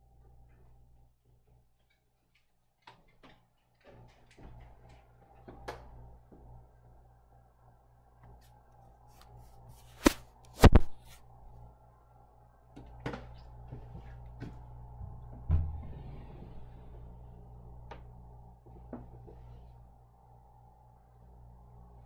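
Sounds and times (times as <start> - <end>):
dull thump: 15.0 - 16.2.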